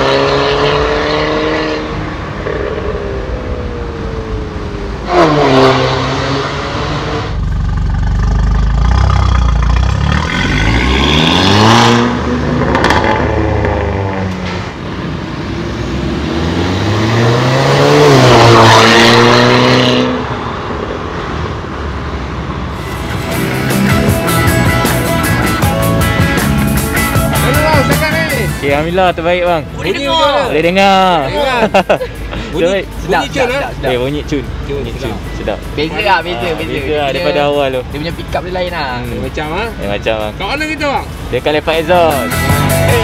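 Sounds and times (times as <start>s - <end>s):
car engine accelerating: 0.0s - 20.8s, 21.4s - 29.8s.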